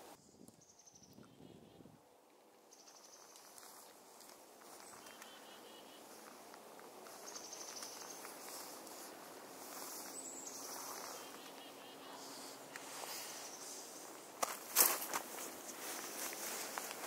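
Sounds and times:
wind noise on microphone: 0.0s - 2.0s
high-pitched bird calls: 4.8s - 6.2s, 9.8s - 12.6s.

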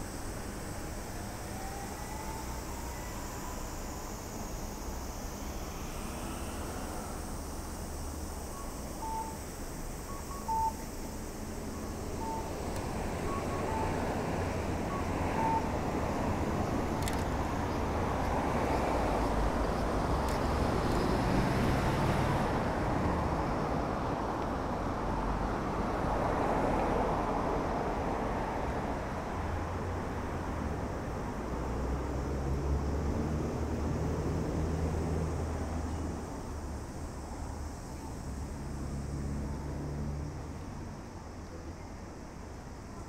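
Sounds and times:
road traffic rushing: 0.0s - 43.0s
short electronic beeps: 10.1s - 10.8s, 14.9s - 15.7s.

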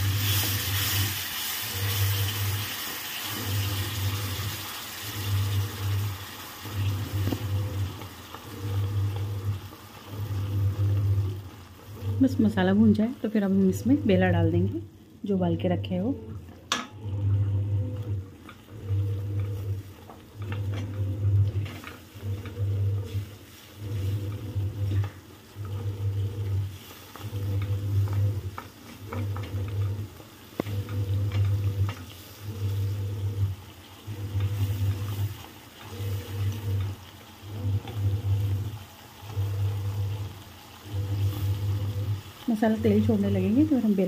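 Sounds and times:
spices frying in oil: 0.0s - 16.5s, 18.1s - 44.0s
electric cooktop humming in pulses: 0.0s - 44.0s.

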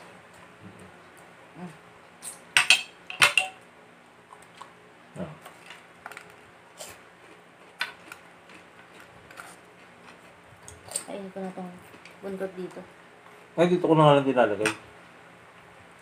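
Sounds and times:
spoon clinking on ceramic plates: 2.6s - 3.6s.

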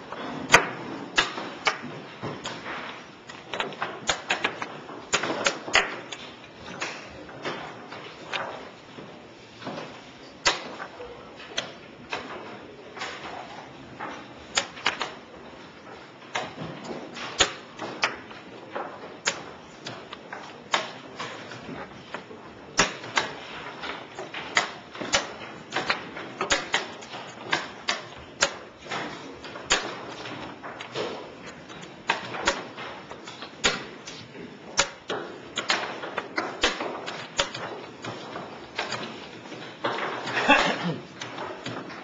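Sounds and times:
chess pieces clicking on board: 0.5s - 8.7s, 13.0s - 42.0s.

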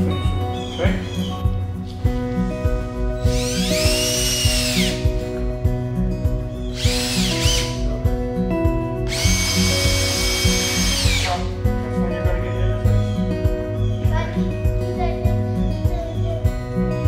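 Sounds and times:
background music: 0.0s - 17.0s
cordless drill whining: 3.2s - 5.1s, 6.6s - 7.9s, 9.0s - 11.5s.

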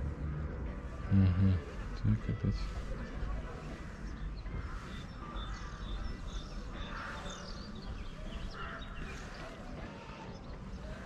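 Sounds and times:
steady low rumble: 0.0s - 9.7s
harsh bird calls: 1.0s - 11.0s
birds chirping and whistling: 2.2s - 11.0s.

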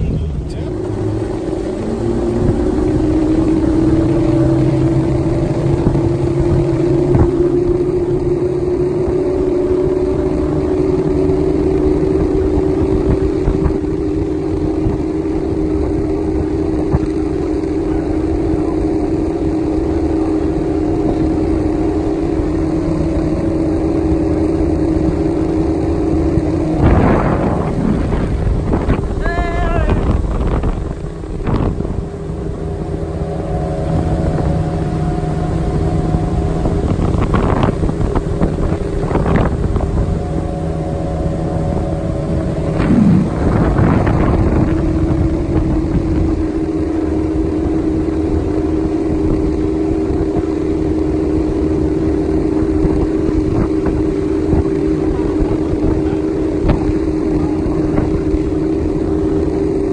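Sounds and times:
outboard motor running: 0.0s - 59.9s
wind buffeting microphone: 0.0s - 59.9s.

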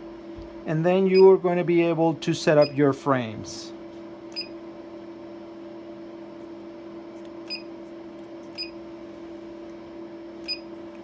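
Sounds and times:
steady electrical hum: 0.0s - 11.0s
short electronic key beeps: 10.4s - 10.7s.

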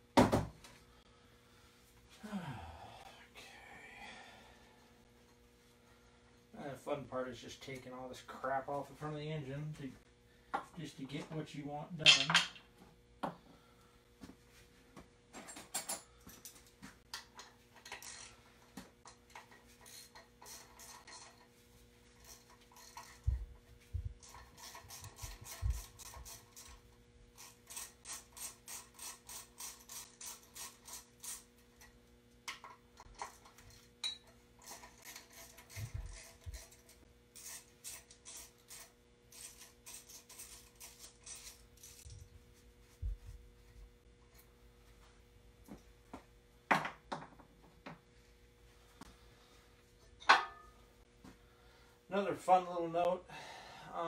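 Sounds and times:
ratchet wrench clicking: 27.4s - 31.5s.

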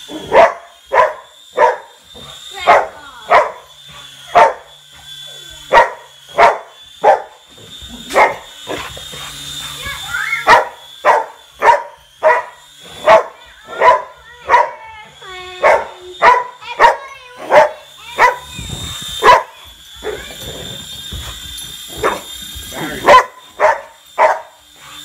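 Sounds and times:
toy helicopter motor whine: 0.0s - 25.0s
dog barking: 0.1s - 2.0s, 2.7s - 3.7s, 4.3s - 4.7s, 5.7s - 7.4s, 8.1s - 8.8s, 10.4s - 14.8s, 15.6s - 18.5s, 19.2s - 20.2s, 22.0s - 22.3s, 22.9s - 24.6s.

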